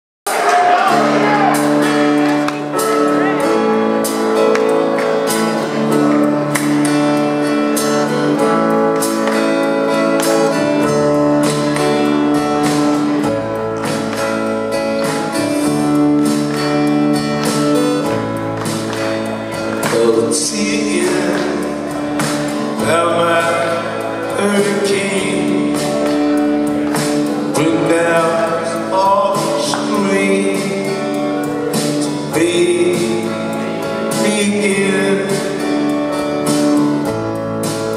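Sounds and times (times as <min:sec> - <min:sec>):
live rock band playing: 0:00.3 - 0:37.9
man singing through pa: 0:19.8 - 0:21.9, 0:22.7 - 0:26.0, 0:27.5 - 0:31.4, 0:32.0 - 0:35.9.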